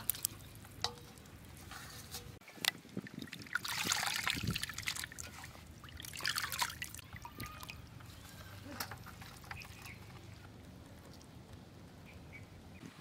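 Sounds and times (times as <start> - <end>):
water trickling and dripping: 0.0 - 8.1
water sloshing and splashing in basin: 0.0 - 10.4.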